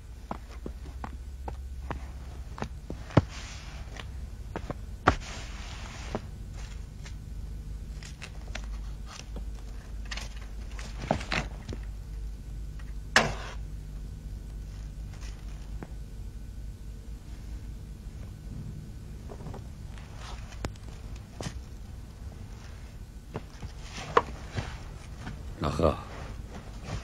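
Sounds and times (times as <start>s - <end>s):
low steady hum: 0.0s - 27.0s
soft rustling: 0.2s - 7.2s, 17.0s - 27.0s.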